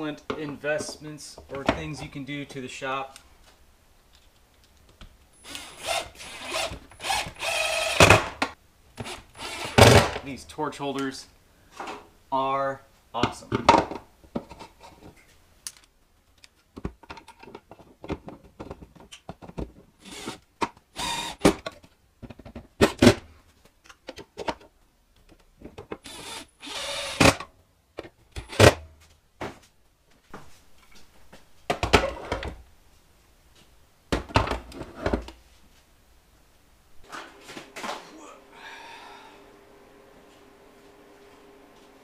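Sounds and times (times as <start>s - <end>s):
cordless drill driving screws: 5.4s - 8.2s, 9.0s - 9.8s, 20.0s - 20.4s, 21.0s - 21.4s, 26.0s - 27.4s
plastic clacks and knocks: 16.7s - 19.9s.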